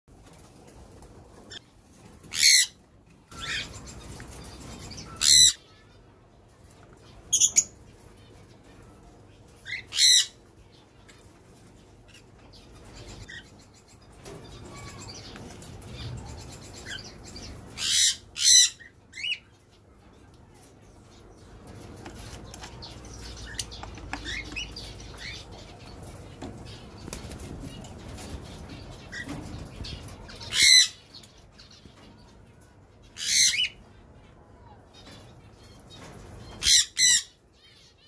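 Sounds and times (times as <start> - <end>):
parrots shrill calls: 2.3 - 3.8, 5.0 - 5.8, 9.7 - 10.4, 17.8 - 19.4, 30.4 - 31.0, 36.6 - 37.4.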